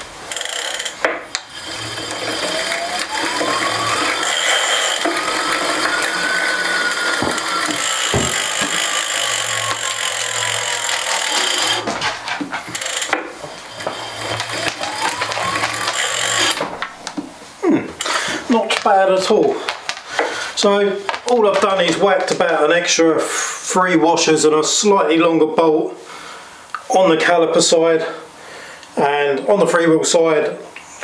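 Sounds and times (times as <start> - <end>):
fast ratchet clicking: 0.2 - 11.9, 12.6 - 16.6.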